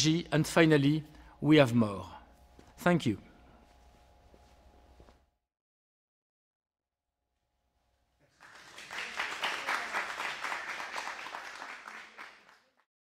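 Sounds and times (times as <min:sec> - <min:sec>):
audience applauding: 0:08.2 - 0:12.9.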